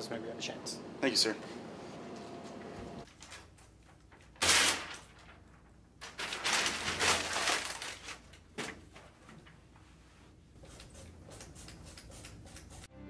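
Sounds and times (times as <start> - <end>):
paper calendar rustling: 3.0 - 12.9.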